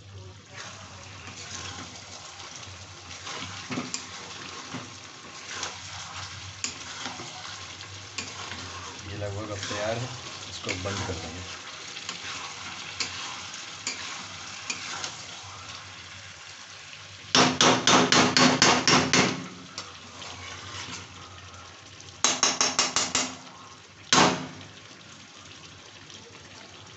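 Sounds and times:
faint frying sizzle: 0:00.0 - 0:26.9
metal spatula knocking on a pan: 0:17.3 - 0:19.4, 0:22.2 - 0:23.4.

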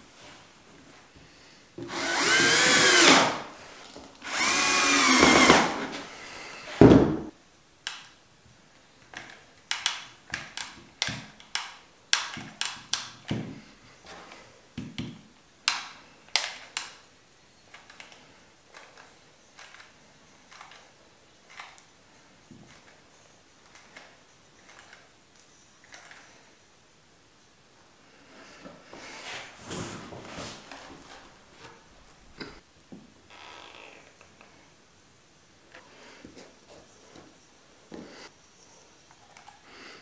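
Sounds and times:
drill motor whine: 0:01.9 - 0:03.4, 0:04.2 - 0:05.9.

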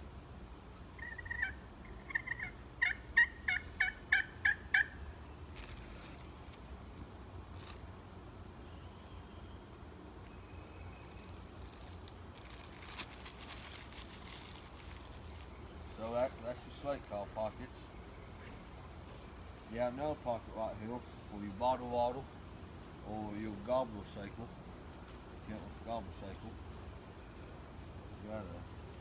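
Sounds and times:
turkey slate call yelps: 0:00.9 - 0:05.0
plastic bag crinkling: 0:11.0 - 0:16.5.

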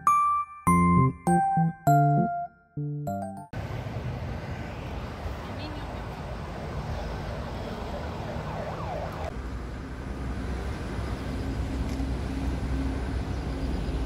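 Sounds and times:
distant road traffic rumble: 0:03.6 - 0:14.0.

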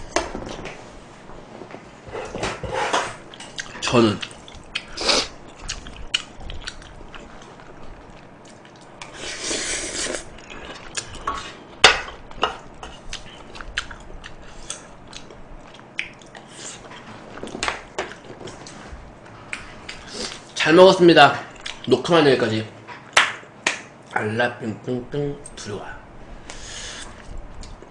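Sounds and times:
chewing and mouth sounds: 0:03.3 - 0:11.5, 0:12.1 - 0:18.8, 0:21.5 - 0:21.9.

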